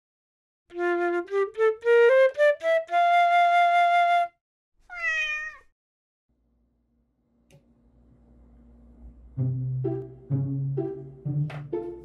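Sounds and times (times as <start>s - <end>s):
cat meow: 4.8s - 5.7s.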